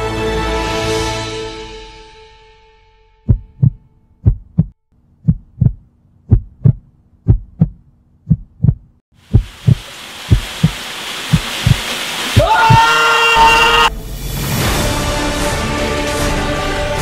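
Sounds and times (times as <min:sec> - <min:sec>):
heartbeat thumping: 0:03.3 - 0:11.8
hiss: 0:09.2 - 0:13.1.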